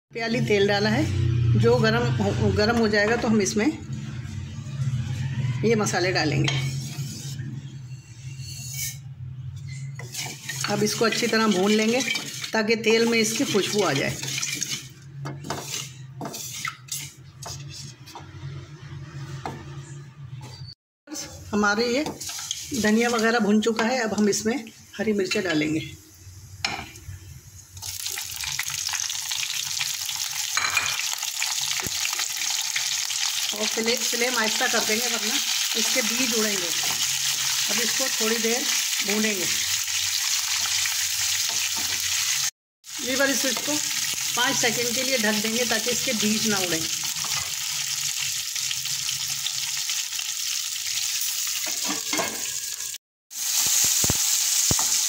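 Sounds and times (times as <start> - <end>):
metal lid scraping pan: 6.4 - 7.4, 8.3 - 17.9
chillies sizzling in hot oil: 10.0 - 18.0, 21.2 - 55.0.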